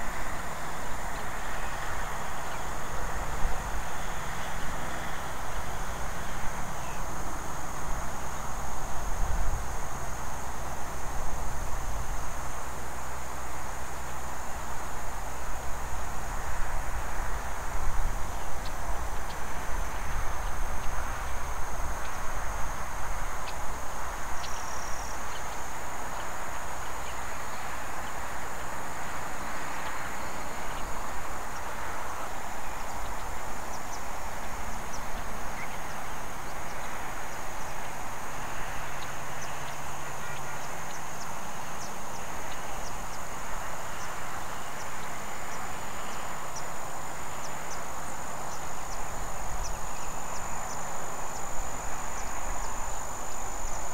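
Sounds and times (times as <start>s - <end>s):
background hiss: 0.0s - 53.9s
insects trilling: 0.0s - 53.9s.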